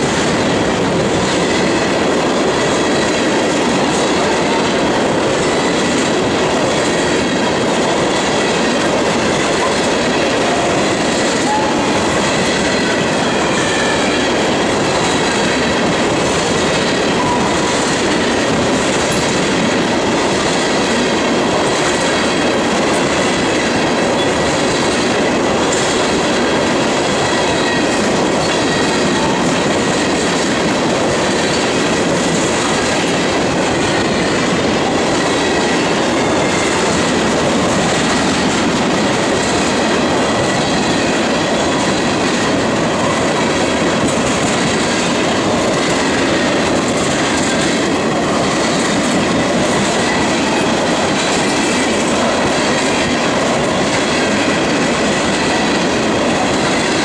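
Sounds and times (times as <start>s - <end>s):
train wheels rushing on rail: 0.0s - 57.0s
high wheel squeal: 11.3s - 15.2s.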